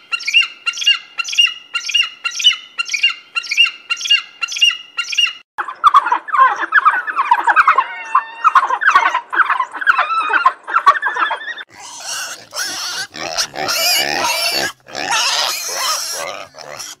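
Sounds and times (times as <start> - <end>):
wild dogs twittering: 5.8 - 17.0
pig squealing: 6.3 - 17.0.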